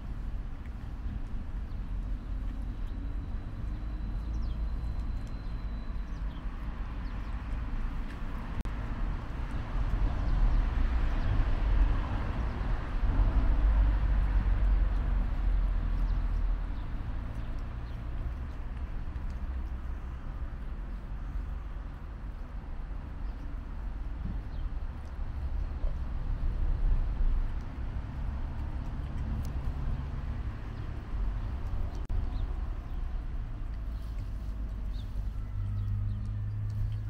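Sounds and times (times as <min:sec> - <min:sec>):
low outdoor rumble: 0:00.0 - 0:37.0
cat crunching kibble: 0:13.9 - 0:32.0.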